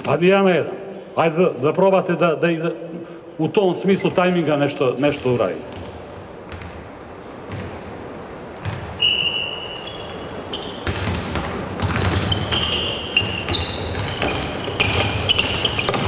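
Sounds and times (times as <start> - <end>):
basketball bouncing on wooden court: 5.1 - 16.0
sneaker squeaks: 7.4 - 16.0.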